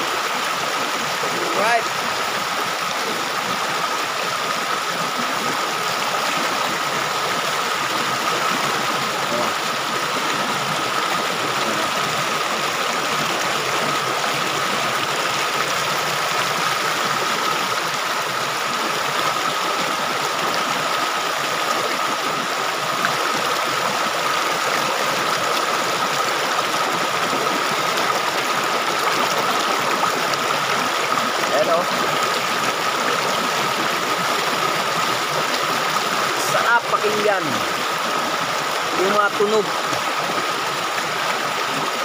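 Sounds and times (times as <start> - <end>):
stream rushing over boulders: 0.0 - 42.0.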